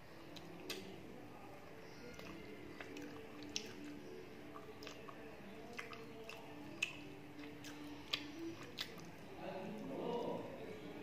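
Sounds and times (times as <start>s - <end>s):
fingers squishing rice: 1.8s - 9.2s
wet chewing mouth smacks: 2.2s - 9.2s.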